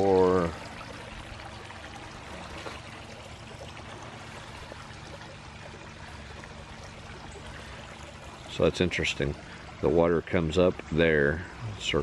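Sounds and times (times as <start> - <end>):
fountain water trickling: 0.0 - 12.0.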